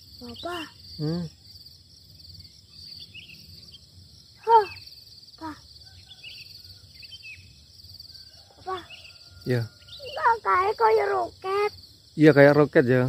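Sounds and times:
insects chorus pulsing: 0.0s - 13.0s
short voice-like calls: 0.2s - 1.4s.

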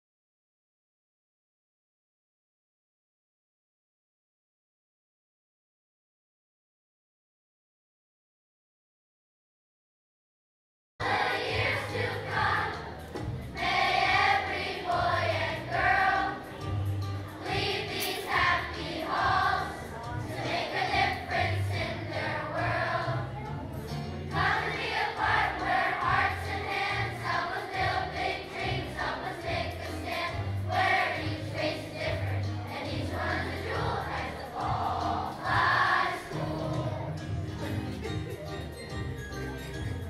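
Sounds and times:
children's choir singing: 11.0s - 37.5s
instrumental accompaniment: 11.0s - 40.0s.

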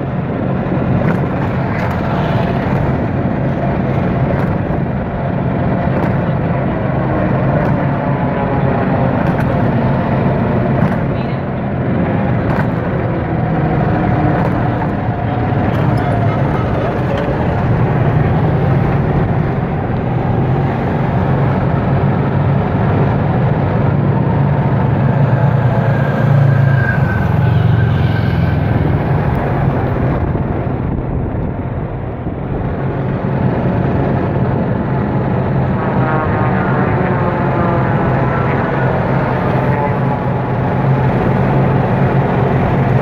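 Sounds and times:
golf cart driving drone: 0.0s - 43.0s.

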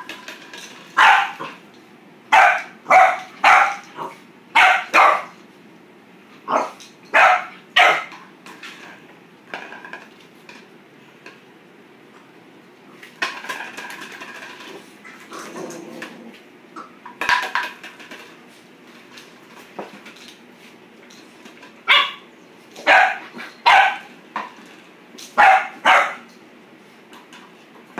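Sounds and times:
puppy barking: 1.0s - 1.5s, 2.3s - 5.4s, 6.5s - 8.1s, 21.9s - 24.1s, 25.4s - 26.3s.

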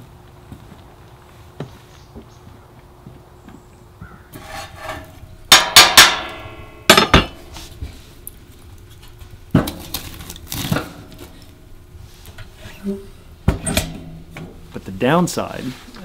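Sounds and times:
metal clanking at stove: 4.3s - 7.7s, 13.4s - 14.7s
log knocking into stove: 4.4s - 7.6s.

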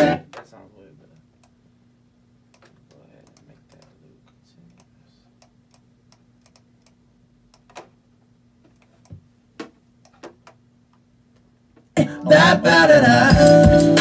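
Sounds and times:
faint steady hum: 0.0s - 14.0s
computer keyboard and mouse clicks: 4.7s - 7.9s
looped beat playing loudly: 12.4s - 14.0s.

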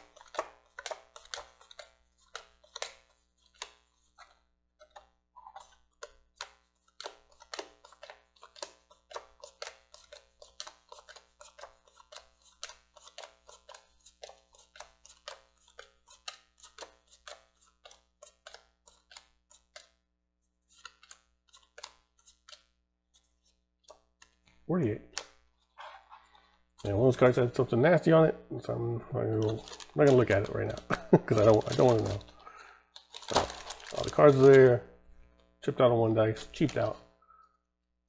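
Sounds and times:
cards snapping onto piles: 0.0s - 19.9s, 20.7s - 22.7s, 29.4s - 35.2s, 36.4s - 37.0s.

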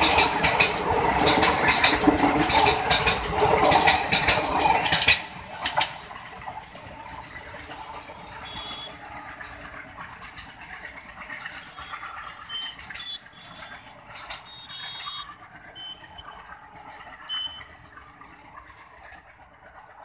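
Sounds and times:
distant train running: 0.0s - 20.0s
short high-pitched beeps: 8.4s - 9.0s, 11.8s - 13.8s, 14.4s - 16.2s.

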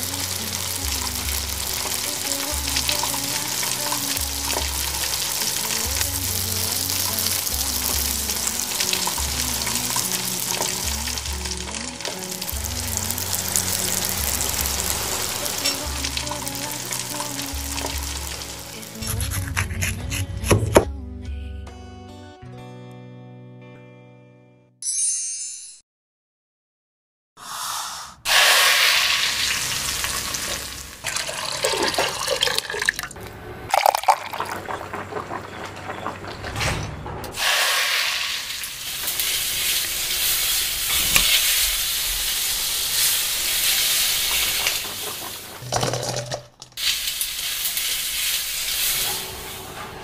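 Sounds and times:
food sizzling in hot oil: 0.0s - 19.2s, 28.3s - 32.9s, 37.4s - 46.2s, 46.8s - 49.7s.

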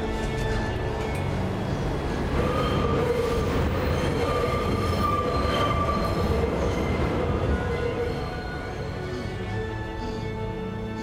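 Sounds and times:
subway train rumbling: 0.0s - 11.0s
train wheels squealing: 1.6s - 9.4s.

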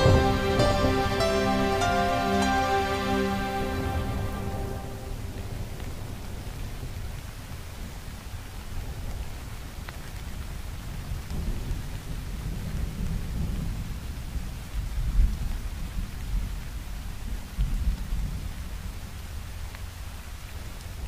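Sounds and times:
rolling thunder rumble: 0.0s - 7.3s
rain hiss: 0.0s - 21.0s.

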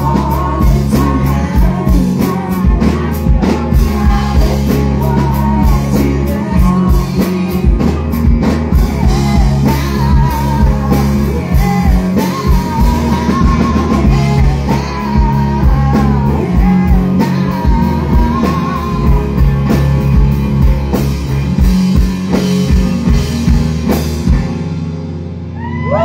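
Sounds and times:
live rock music: 0.0s - 26.0s
crowd whooping and cheering: 25.5s - 26.0s.

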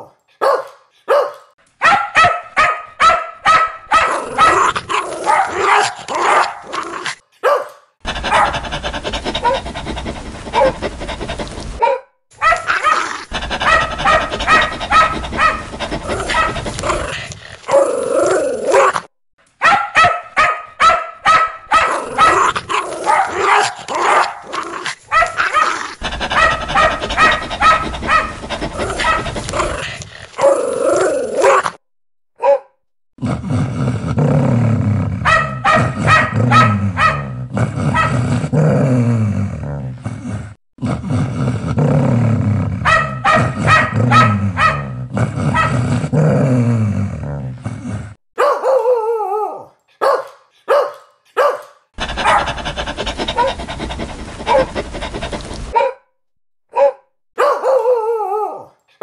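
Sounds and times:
dog barking loudly: 0.0s - 6.8s, 7.4s - 17.8s, 19.6s - 30.5s, 32.4s - 32.7s, 35.2s - 38.2s, 42.8s - 45.9s, 48.4s - 49.0s, 50.0s - 56.0s, 56.7s - 58.0s.

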